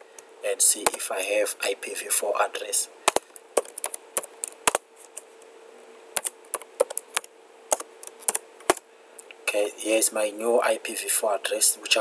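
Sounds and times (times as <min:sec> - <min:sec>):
keyboard typing: 0:03.1 - 0:05.2, 0:06.2 - 0:08.8.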